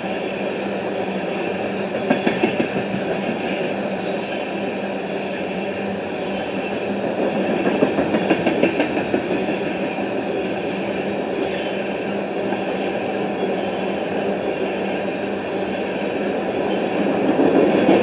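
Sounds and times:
steel wheels rumbling on rail: 0.0 - 18.0
train wheels clacking: 1.9 - 4.5, 6.2 - 9.9.

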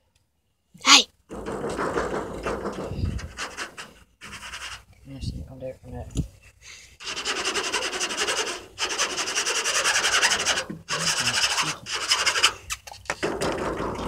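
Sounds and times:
fast rasping rub: 1.4 - 4.9, 7.0 - 13.9.

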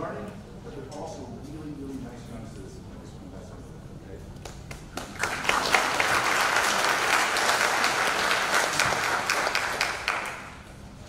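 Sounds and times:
audience applauding: 4.4 - 10.7.

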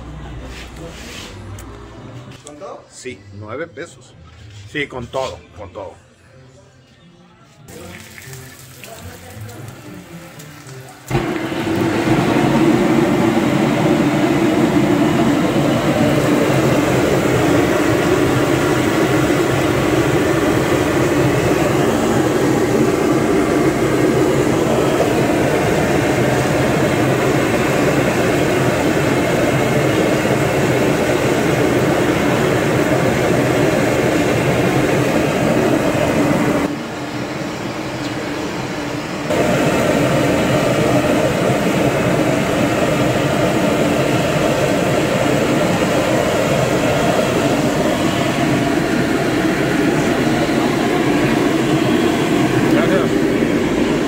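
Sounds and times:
gas burner roaring: 0.0 - 3.2, 7.7 - 54.0
faint music: 0.0 - 11.6.

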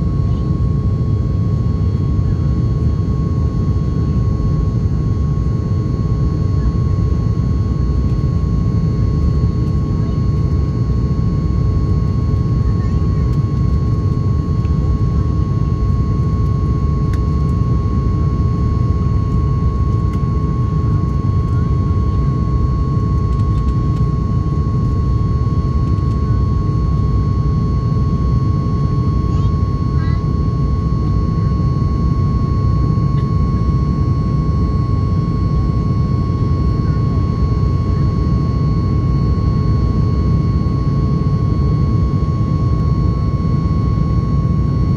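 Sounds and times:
jet engine cabin rumble: 0.0 - 44.9
steady high whine: 0.0 - 44.9.

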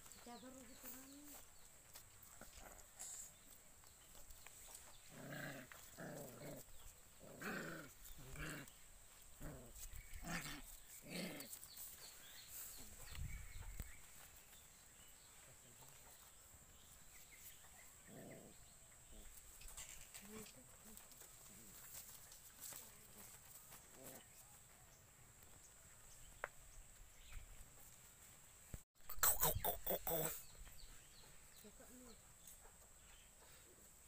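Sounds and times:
puppies growling: 4.8 - 11.6, 17.9 - 18.9.

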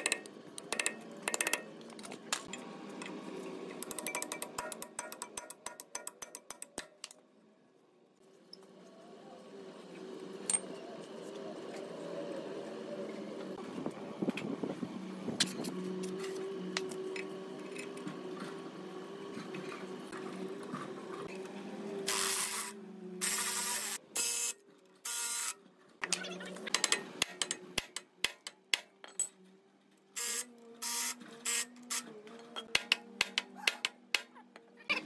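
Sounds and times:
sharp metal clicks: 0.0 - 1.7.

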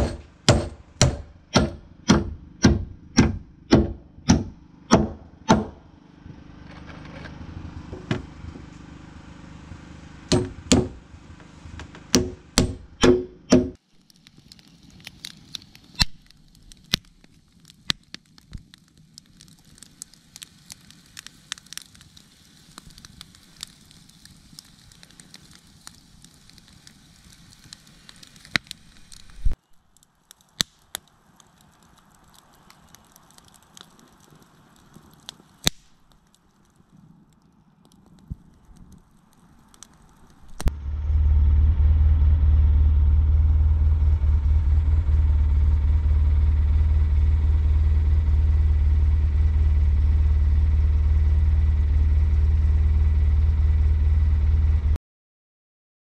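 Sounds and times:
campfire crackling and popping: 0.0 - 5.8, 10.2 - 40.9
hammer nailing floorboards: 0.0 - 5.8, 10.3 - 11.0, 11.8 - 13.8
steady low hum: 40.5 - 54.9.

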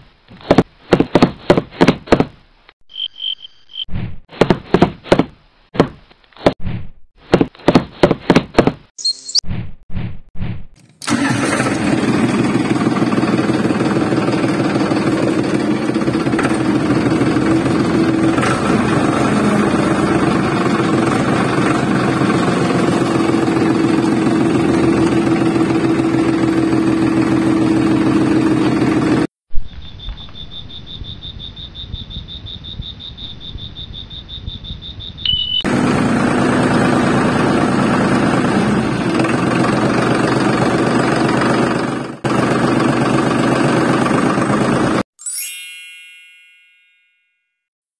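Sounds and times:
small motor droning: 11.0 - 29.3, 35.7 - 45.0.

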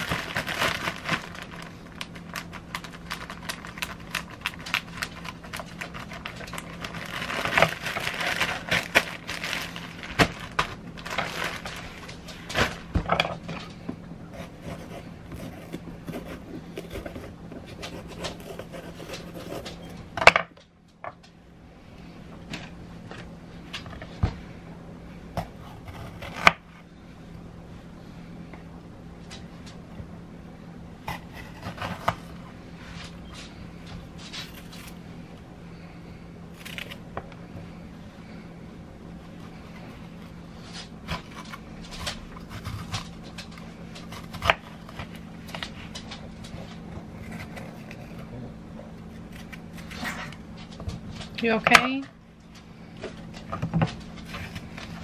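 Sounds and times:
food handling clicks and rustles: 0.0 - 21.3, 49.3 - 55.0
steady low hum: 0.0 - 55.0.

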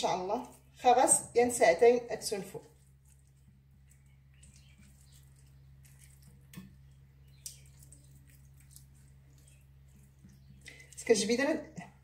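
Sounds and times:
hands squishing marinade into meat: 2.4 - 12.0.

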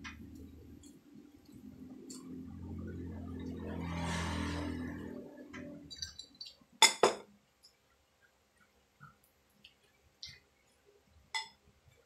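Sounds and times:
tableware clinking: 5.9 - 7.3, 11.4 - 11.6.

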